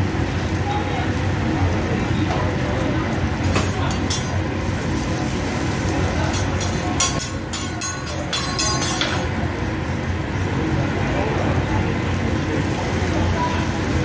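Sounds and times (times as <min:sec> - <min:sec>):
metal spatula scraping griddle: 0:06.3 - 0:09.3.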